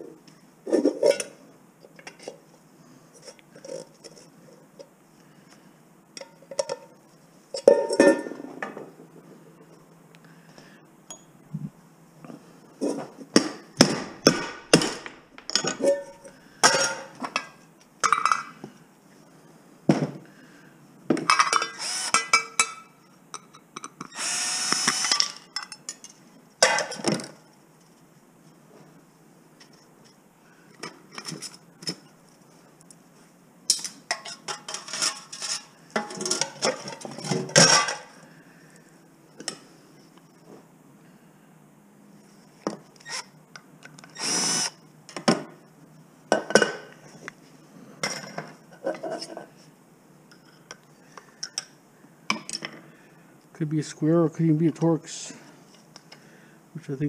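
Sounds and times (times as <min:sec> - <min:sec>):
metal pots clattering: 0:07.6 - 0:08.8, 0:15.5 - 0:18.5, 0:33.8 - 0:38.1
cordless drill running: 0:21.8 - 0:22.2, 0:24.2 - 0:25.2, 0:44.2 - 0:44.8.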